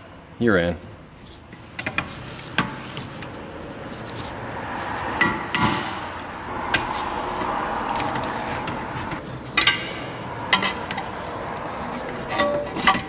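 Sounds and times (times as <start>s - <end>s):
hand tools clinking on metal: 10.5s - 13.0s.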